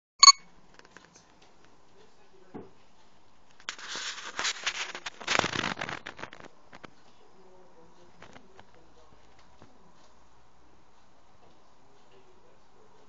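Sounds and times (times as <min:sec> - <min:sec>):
crackling and scratching clicks: 0:03.5 - 0:07.2.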